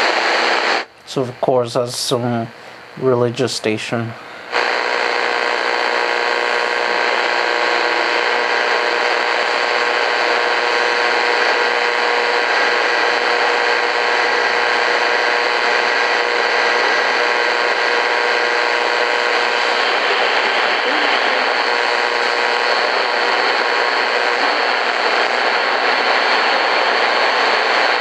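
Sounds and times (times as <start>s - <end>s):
radio static hiss: 0.0s - 28.0s.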